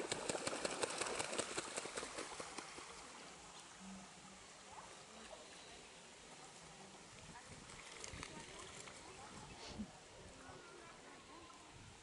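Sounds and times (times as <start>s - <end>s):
goose wings splashing water: 0.0s - 3.5s, 7.5s - 9.4s.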